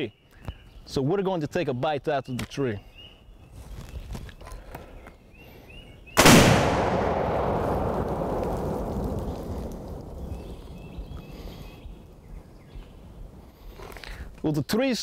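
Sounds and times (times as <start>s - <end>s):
faint bird chirps: 0.0s - 6.2s, 10.1s - 14.8s
explosion blast with rumbling decay: 6.2s - 11.2s.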